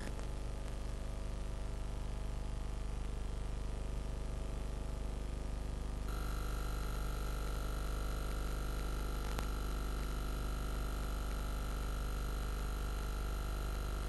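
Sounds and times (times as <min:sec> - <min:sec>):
low mains hum: 0:00.0 - 0:14.0
tape hiss: 0:00.0 - 0:14.0
click: 0:09.2 - 0:10.1.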